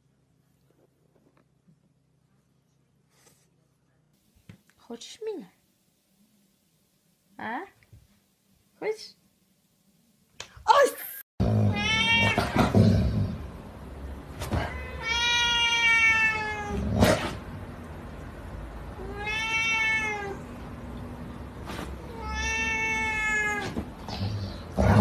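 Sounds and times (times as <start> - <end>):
kitten meowing: 19.0 - 20.4, 22.1 - 23.6.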